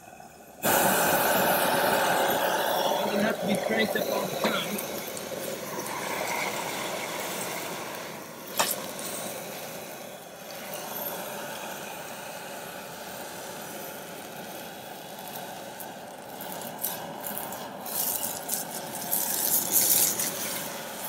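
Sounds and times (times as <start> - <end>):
gas burner roaring hiss: 0.0 - 21.0.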